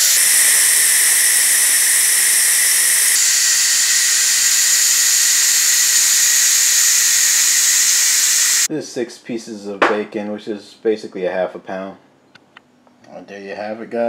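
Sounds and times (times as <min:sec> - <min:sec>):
steam hissing from valve: 0:00.0 - 0:08.7.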